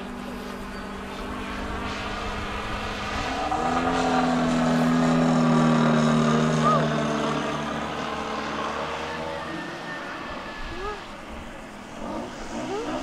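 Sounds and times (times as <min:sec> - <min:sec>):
model airplane engine droning: 0:00.0 - 0:13.0.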